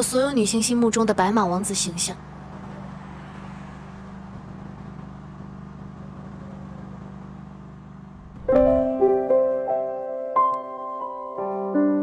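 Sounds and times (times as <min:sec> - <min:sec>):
low hum: 0:07.9 - 0:09.6
slow piano melody: 0:08.3 - 0:12.0.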